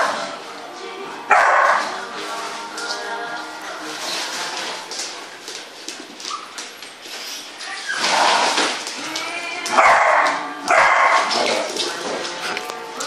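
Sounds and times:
young dogs barking: 0:01.3 - 0:01.8, 0:09.7 - 0:11.6.

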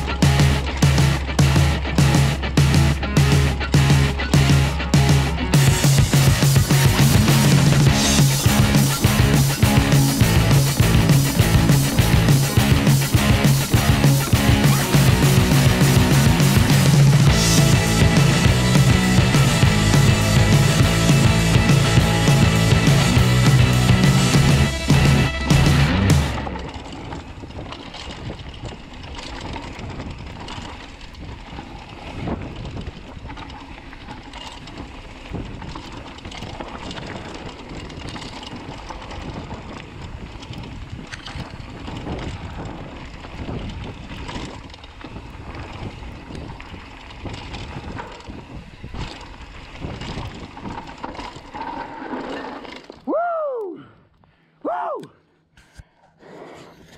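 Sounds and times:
bike rattling and knocking: 0:00.0 - 0:53.2
bike tyres rolling over dirt: 0:00.0 - 0:54.4
wind on microphone: 0:26.6 - 0:33.8, 0:34.6 - 0:51.6.

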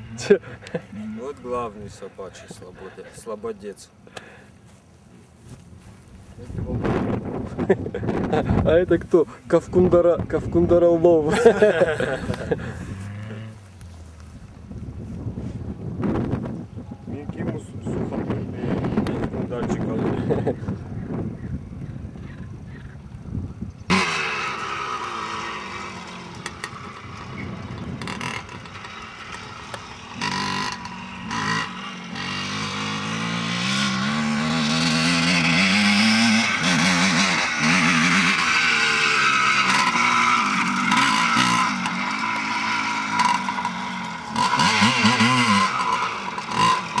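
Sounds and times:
dirt bike engine revving: 0:06.6 - 0:14.4, 0:23.9 - 0:47.0.

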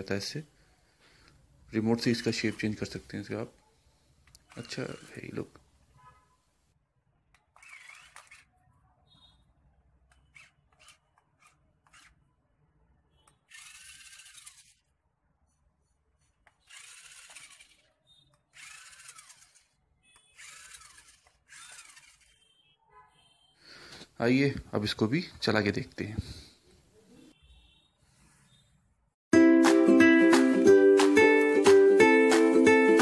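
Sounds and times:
toy gear motors whirring: 0:04.2 - 0:05.6, 0:07.3 - 0:08.6, 0:10.1 - 0:12.4, 0:13.2 - 0:15.0, 0:16.2 - 0:22.6.

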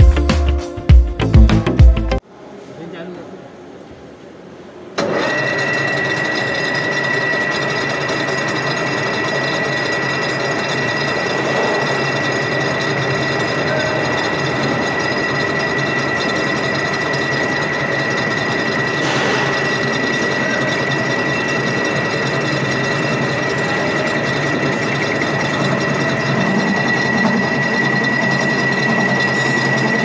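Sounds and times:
lathe running: 0:05.0 - 0:30.0.

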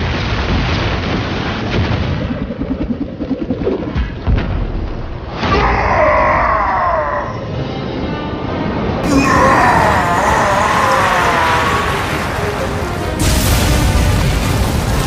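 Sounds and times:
sweeping orchestral music: 0:07.5 - 0:15.0
sharp impacts: 0:09.0 - 0:15.0
loud boom with heavy rumble: 0:11.7 - 0:15.0.

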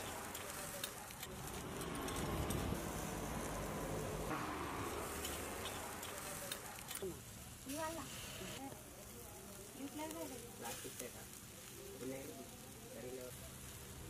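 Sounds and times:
coals crackling and spitting: 0:00.0 - 0:14.0
meat sizzling on charcoal grill: 0:00.0 - 0:14.0
steady low rumble: 0:01.2 - 0:06.5.

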